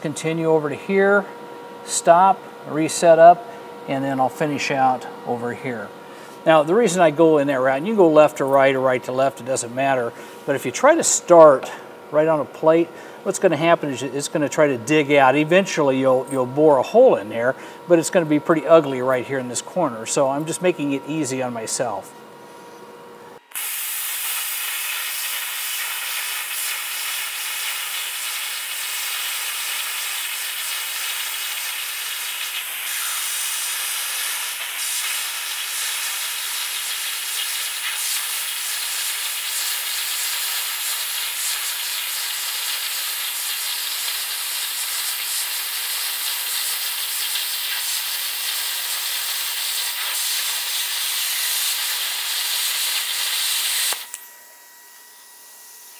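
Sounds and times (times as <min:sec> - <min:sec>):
plasma cutter hissing: 0:23.5 - 0:54.1.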